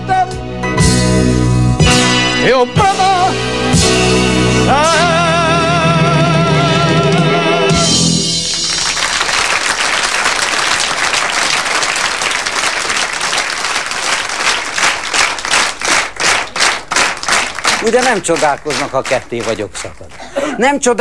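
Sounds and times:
band playing: 0.0 - 20.2
person singing with vibrato: 4.4 - 8.0
rhythmic clapping: 8.3 - 21.0
audience applauding: 8.4 - 21.0.

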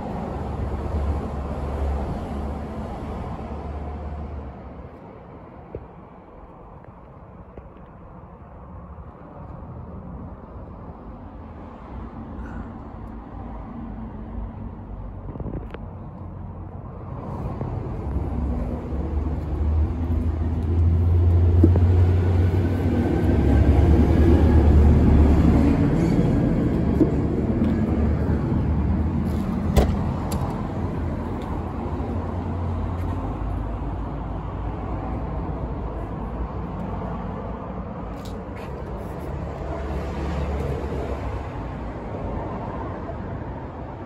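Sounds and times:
low engine rumble: 12.4 - 42.3.

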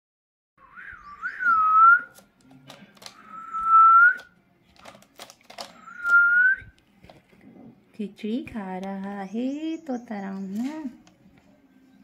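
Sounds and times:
whistling in long notes: 0.6 - 2.1, 3.3 - 4.3, 5.8 - 6.7.

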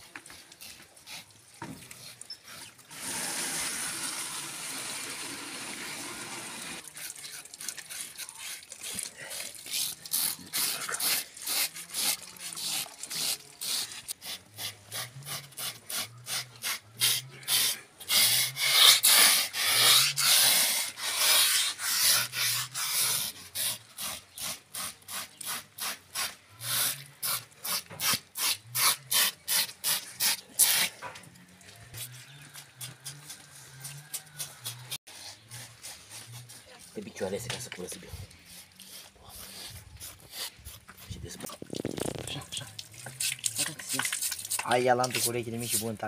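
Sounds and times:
knife blades scraping pig skin: 6.9 - 31.0, 32.0 - 37.1.

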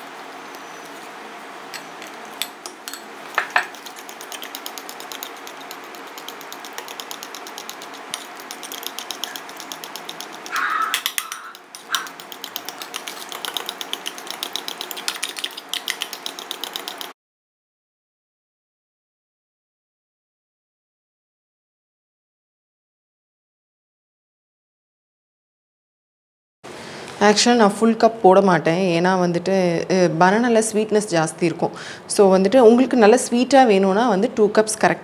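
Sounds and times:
metal spoon clinking glass bowl: 1.7 - 4.4, 8.2 - 15.5.

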